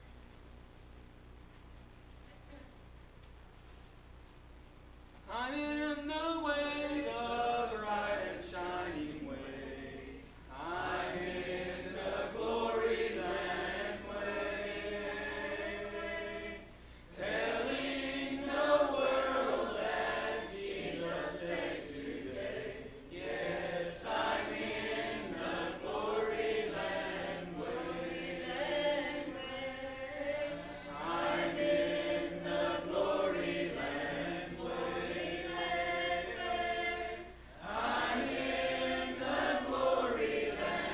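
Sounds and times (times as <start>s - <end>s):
congregation singing a hymn: 5.3s - 40.9s.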